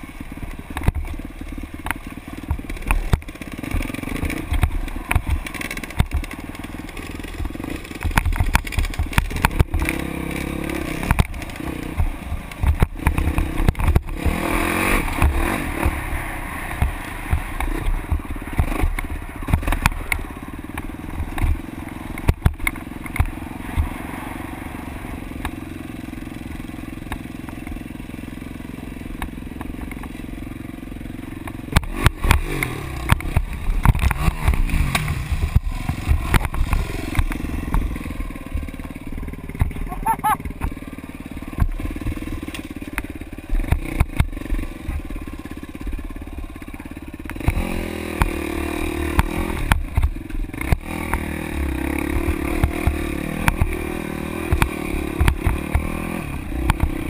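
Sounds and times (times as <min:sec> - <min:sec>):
dirt bike engine revving: 0:00.0 - 0:57.0
knocks and thumps of rough ride: 0:00.0 - 0:57.0.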